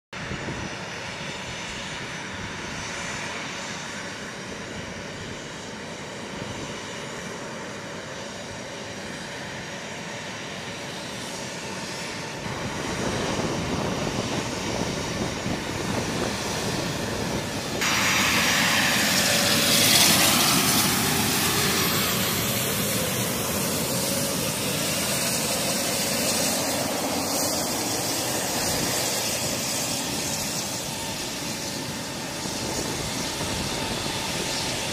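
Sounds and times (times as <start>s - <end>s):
jet engines taxiing: 0.2s - 34.9s
bright jet hiss: 17.8s - 23.2s.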